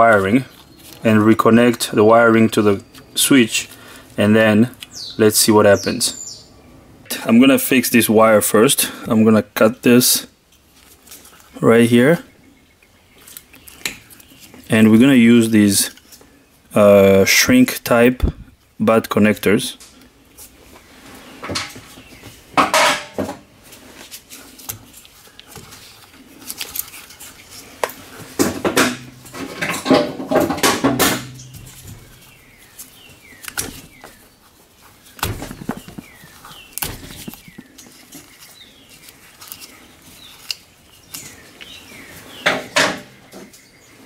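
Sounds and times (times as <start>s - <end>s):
side cutters snipping wires: 33.4s - 33.9s.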